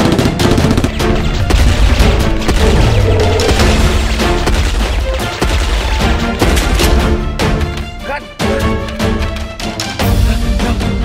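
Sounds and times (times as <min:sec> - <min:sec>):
rapid gunfire: 0:00.0 - 0:07.2
loud dramatic music: 0:00.0 - 0:11.0.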